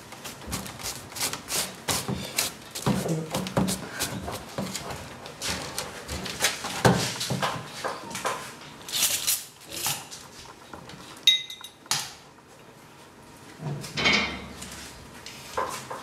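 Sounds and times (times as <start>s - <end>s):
ringing metallic clink: 11.3s - 11.8s.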